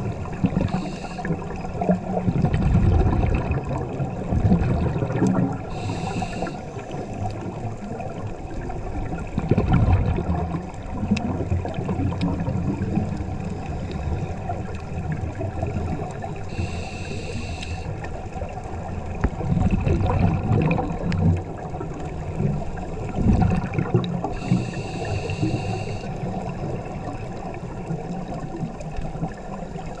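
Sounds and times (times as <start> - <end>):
exhaled air bubbling: 0.0 - 30.0
underwater wash: 0.0 - 30.0
regulator breathing hisses: 0.7 - 1.4, 5.7 - 7.0, 16.5 - 18.0, 24.3 - 26.2.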